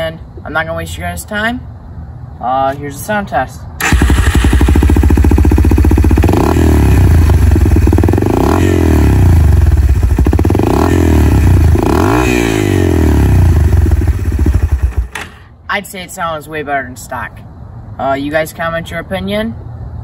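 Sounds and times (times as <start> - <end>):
motorcycle engine idling and revving: 3.8 - 15.2.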